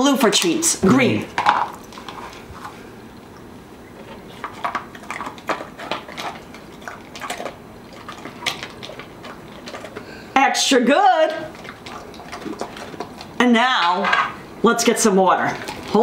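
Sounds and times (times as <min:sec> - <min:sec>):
dog crunching treats: 0:00.3 - 0:02.8, 0:03.9 - 0:10.3, 0:11.3 - 0:14.1, 0:15.5 - 0:16.0.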